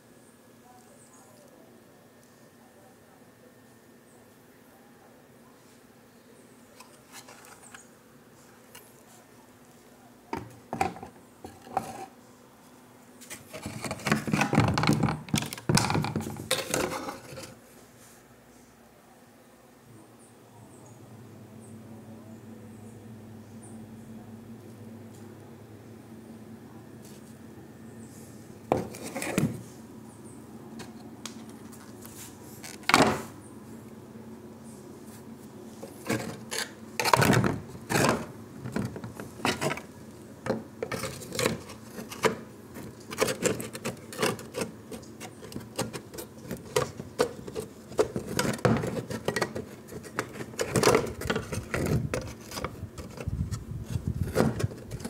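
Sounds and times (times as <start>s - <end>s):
plastic crackling and scraping: 6.8s - 7.8s, 10.4s - 12.1s, 13.2s - 17.6s, 28.7s - 29.7s, 35.8s - 55.0s
plastic parts knocking: 13.6s - 17.1s.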